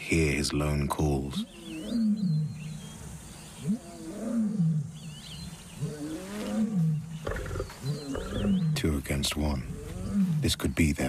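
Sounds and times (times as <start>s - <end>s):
bird chirping faintly: 0.1s - 11.0s
lion roaring: 5.8s - 8.8s, 9.6s - 10.4s.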